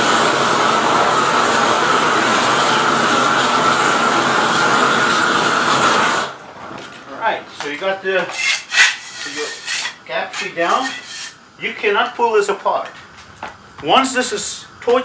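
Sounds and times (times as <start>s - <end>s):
roofing torch rushing: 0.0s - 6.4s.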